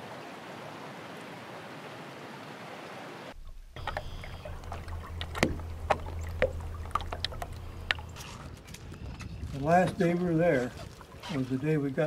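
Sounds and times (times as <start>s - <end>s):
outdoor ambience hiss: 0.0s - 8.6s
water around a boat oar: 2.7s - 12.0s
water clicks and drips: 3.4s - 8.3s.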